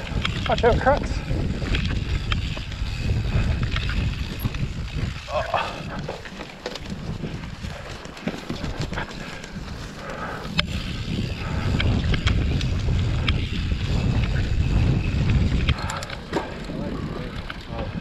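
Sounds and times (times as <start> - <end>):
bike chain and frame clicks: 0.0 - 18.0
bike tyre noise: 0.0 - 18.0
wind rumbling on microphone: 0.0 - 18.0.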